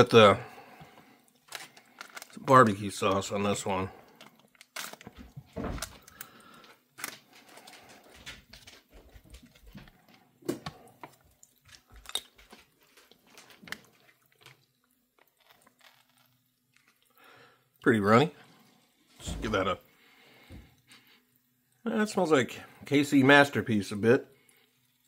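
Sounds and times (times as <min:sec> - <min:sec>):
food packets crinkling: 0:00.7 - 0:17.5.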